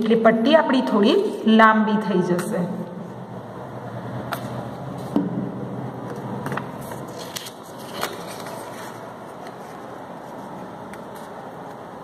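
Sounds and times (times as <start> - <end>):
paper rustling: 6.4 - 11.8.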